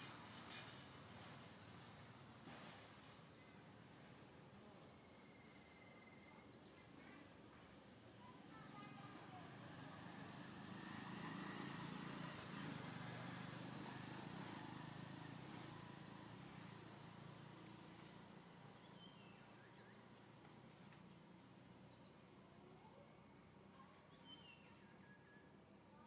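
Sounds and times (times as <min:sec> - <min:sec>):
insects droning: 0:00.0 - 0:26.0.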